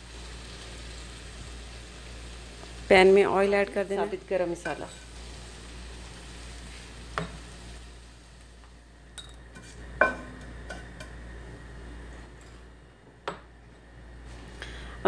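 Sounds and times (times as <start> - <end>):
spices sizzling in oil: 0.0 - 12.8
metallic ring of a pot: 9.2 - 9.4
wooden spoon scraping a pot: 9.5 - 9.9.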